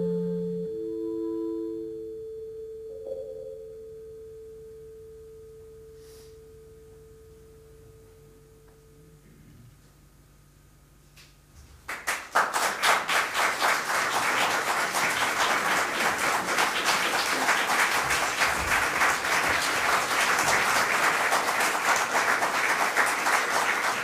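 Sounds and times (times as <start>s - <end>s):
audience applause: 11.9s - 24.0s.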